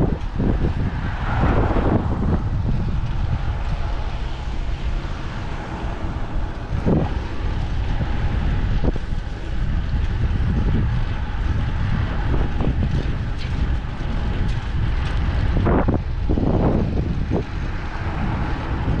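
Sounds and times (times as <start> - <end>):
wind buffeting microphone: 0.0 - 19.0
bicycle knocks and rattles: 6.5 - 19.0.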